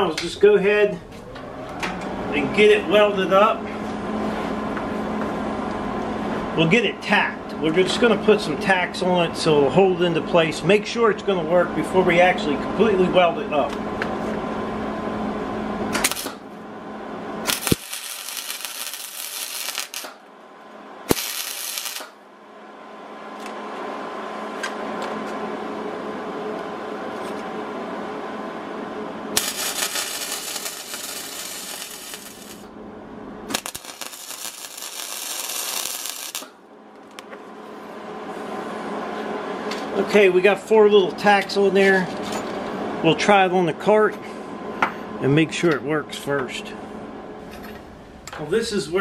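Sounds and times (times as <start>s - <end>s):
steady low hum: 0.0s - 49.0s
welding arc crackling and hissing: 16.0s - 16.4s, 17.4s - 20.3s, 21.1s - 22.2s, 29.4s - 32.7s, 33.5s - 36.6s.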